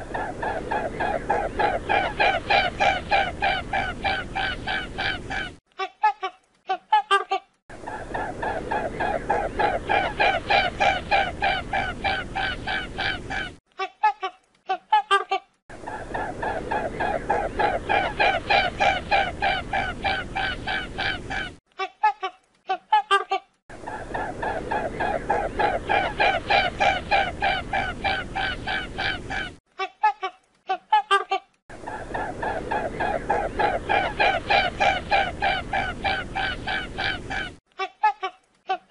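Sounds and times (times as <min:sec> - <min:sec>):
swan calling: 0:00.0 - 0:05.6, 0:08.0 - 0:13.6, 0:16.0 - 0:21.6, 0:24.0 - 0:29.6, 0:31.8 - 0:37.6
waterfowl honking: 0:01.3 - 0:05.5, 0:33.0 - 0:37.5.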